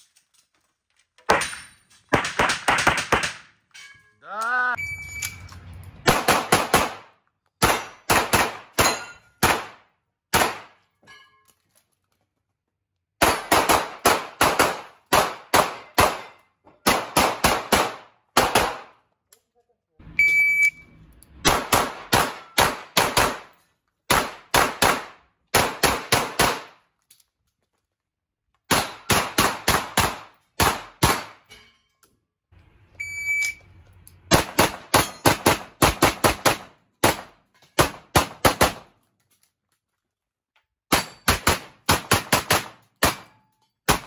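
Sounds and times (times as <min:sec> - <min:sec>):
shot timer beep: 0:04.8 - 0:05.5, 0:20.2 - 0:21.0, 0:33.0 - 0:33.7
gunshots echoing indoors: 0:06.0 - 0:10.9, 0:13.2 - 0:19.0, 0:21.4 - 0:26.8.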